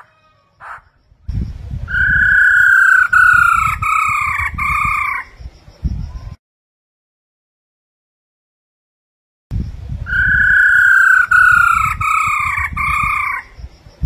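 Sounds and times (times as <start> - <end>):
bird whistled song: 0.6 - 6.4, 10.1 - 13.5.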